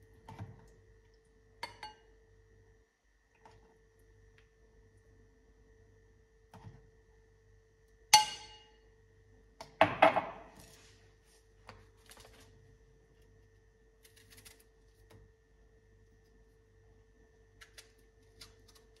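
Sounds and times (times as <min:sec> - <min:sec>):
glass clinking on counter: 0:01.6 - 0:02.0.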